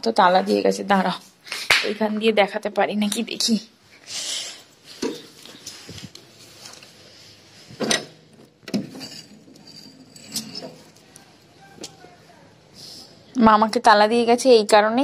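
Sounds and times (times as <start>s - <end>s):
curtain fabric rustling: 4.7s - 7.8s
metallic clinks and scrapes: 8.7s - 11.4s.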